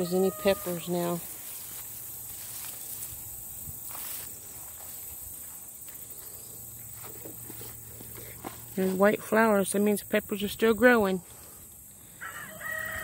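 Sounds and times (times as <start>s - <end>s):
plants rustling: 0.0s - 9.3s
footsteps: 0.0s - 9.4s
insect chorus: 0.0s - 13.0s.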